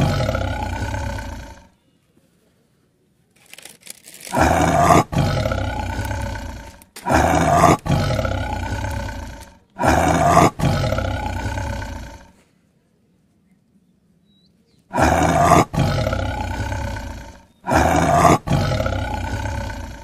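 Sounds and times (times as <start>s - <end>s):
big cat roaring: 0.0s - 1.7s, 4.2s - 12.4s, 14.9s - 20.0s.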